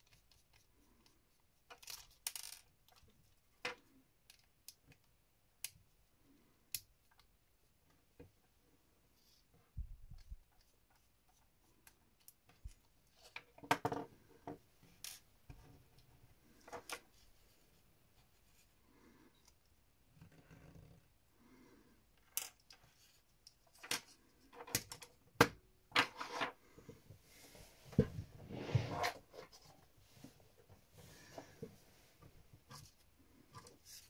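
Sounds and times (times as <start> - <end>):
small parts being handled: 0.1 - 5.8.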